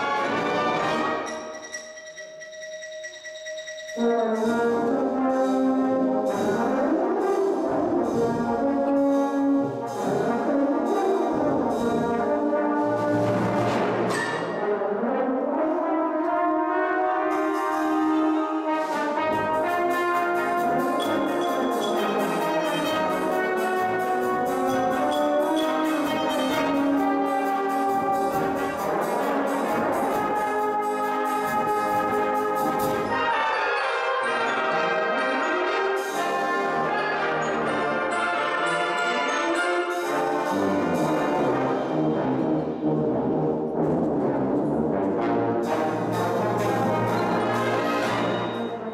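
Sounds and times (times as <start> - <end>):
brass band playing: 0.0 - 48.9
percussion fast beat: 1.2 - 12.4, 17.3 - 33.5, 45.6 - 48.9.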